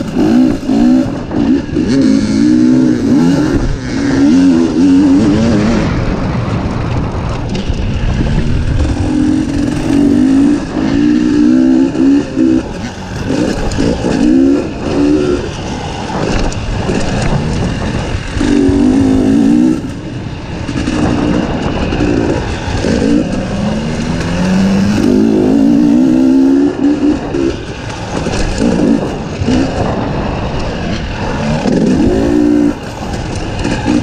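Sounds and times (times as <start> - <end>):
dirt bike engine revving: 0.0 - 34.0.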